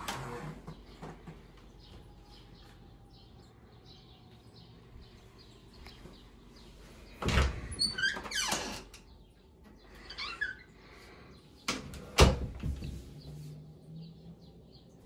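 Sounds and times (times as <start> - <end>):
door rustling and squeaking: 0.0 - 1.4, 7.2 - 9.1, 10.0 - 10.8.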